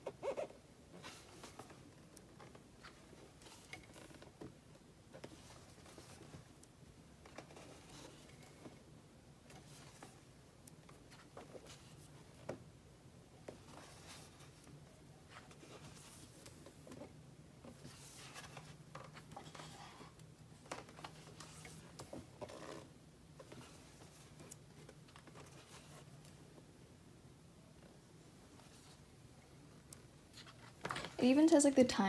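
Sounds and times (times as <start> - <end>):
magazine pages turning: 17.7 - 20.1.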